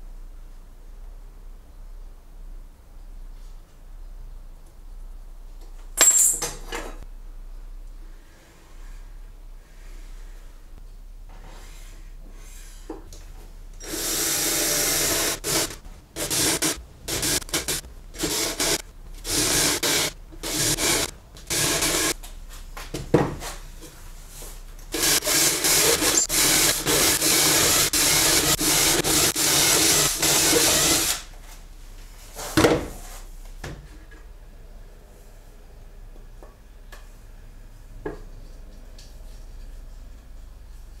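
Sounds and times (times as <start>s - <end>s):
power drill boring into wood: 13.8s - 22.1s, 25.0s - 31.2s.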